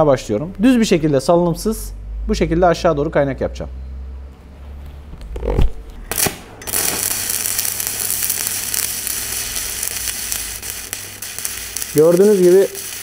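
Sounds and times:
welding arc crackle and sizzle: 5.4s - 13.0s.

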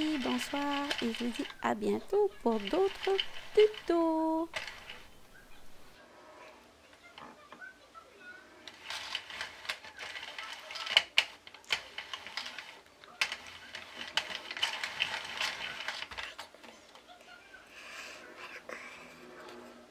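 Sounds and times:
knitting machine plastic clicking: 0.0s - 6.0s, 8.7s - 16.5s.

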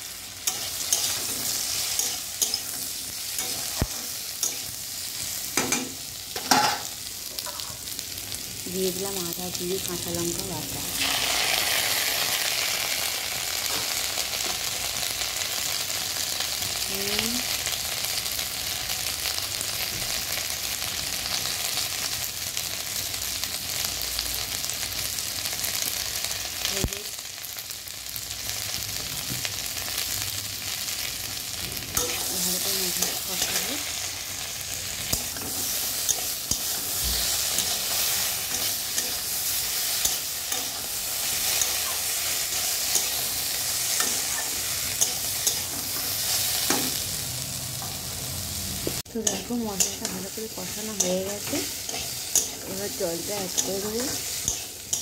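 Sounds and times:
vegetables sizzling in oil: 0.0s - 55.0s
metal spatula scraping pan: 49.3s - 55.0s.

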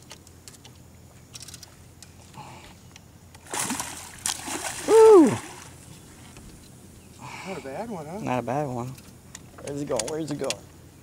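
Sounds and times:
fish splashing at surface: 3.5s - 5.7s.

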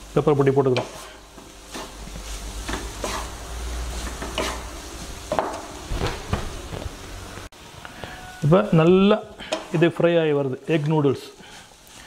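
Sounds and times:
noodles sizzling in a frying pan: 0.0s - 5.9s, 6.5s - 12.0s
spatulas scraping a pan: 0.5s - 5.6s.

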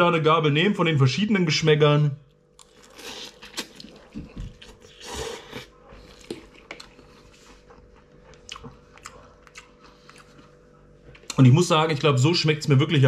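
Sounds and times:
person chewing: 2.6s - 11.4s
person slurping noodles: 4.8s - 6.6s.

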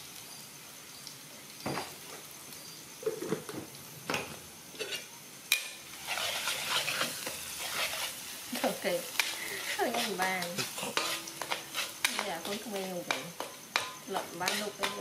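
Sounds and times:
aromatics sizzling in oil: 0.0s - 15.0s
metal spatula scraping wok: 4.7s - 15.0s.

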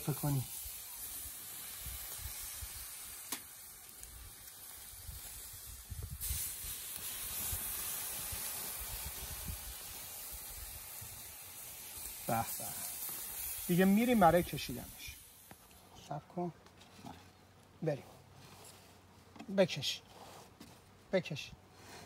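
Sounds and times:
juice dripping on hot coals: 0.0s - 16.1s
meat sizzling over charcoal: 0.0s - 16.2s.

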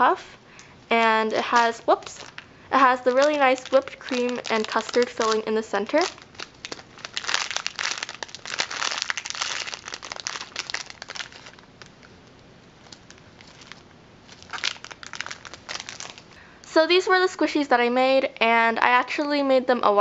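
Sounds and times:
plastic bag crinkling: 0.9s - 16.4s.

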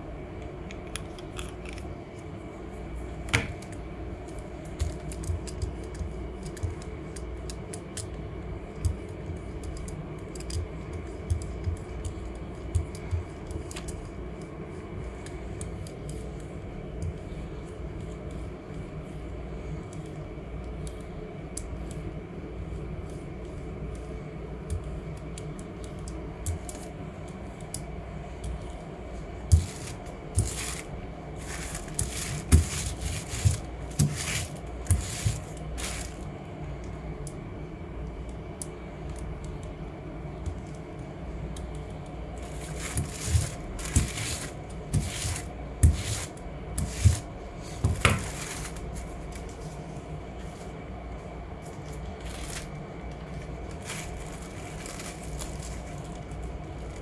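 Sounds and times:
steady low hum: 0.0s - 57.0s
paper rustling and crinkling: 29.6s - 36.2s, 48.0s - 49.8s, 51.8s - 57.0s.

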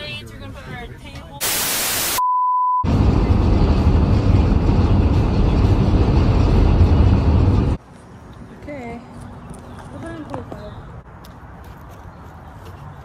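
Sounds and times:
road and engine rumble in cab: 2.9s - 7.8s.

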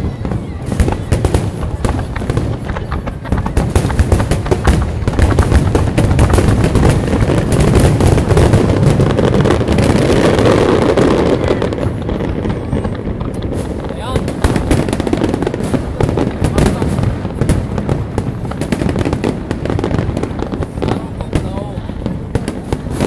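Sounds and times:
fireworks crackling: 0.0s - 23.0s
fireworks popping and banging: 0.0s - 23.0s.

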